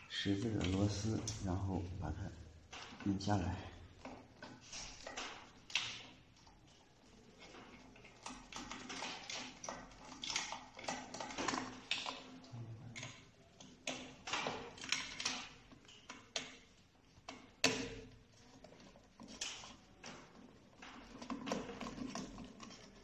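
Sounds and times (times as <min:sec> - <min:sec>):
plastic and metal parts clicking: 0:07.4 - 0:23.0.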